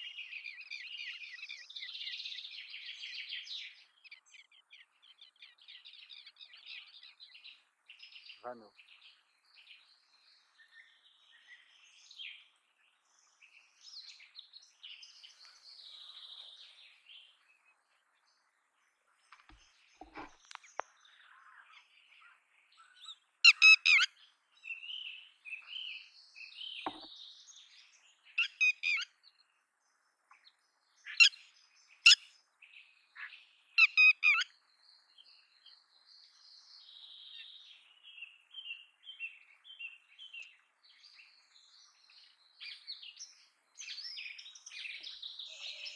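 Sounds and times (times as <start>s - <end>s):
lapwing calling: 23.4s - 24.1s, 33.2s - 34.5s.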